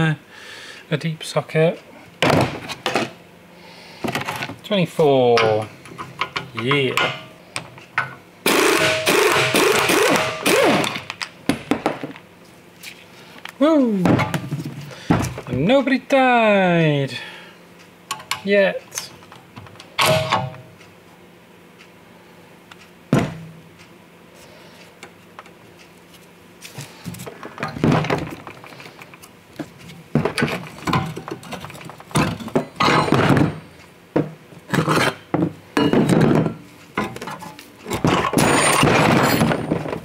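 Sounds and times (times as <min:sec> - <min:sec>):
metal parts clanking and rattling: 0:19.6 - 0:20.6, 0:27.2 - 0:29.2, 0:30.2 - 0:33.7, 0:35.8 - 0:40.0.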